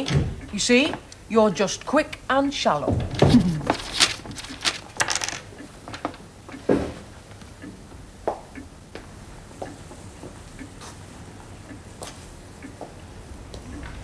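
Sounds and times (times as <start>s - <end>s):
draughts pieces clattering on board: 3.1s - 5.5s.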